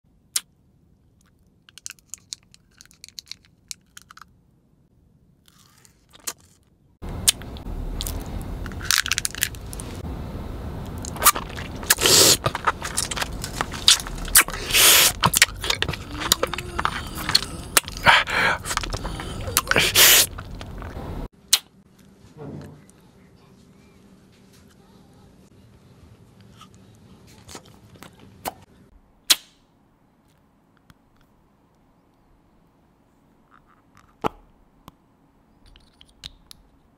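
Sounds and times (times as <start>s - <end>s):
hard candy crunched by teeth: 1.2s - 4.3s, 8.0s - 9.8s, 11.0s - 20.9s
low steady rumble: 7.0s - 27.2s
plastic wrapper crinkling: 11.0s - 16.6s.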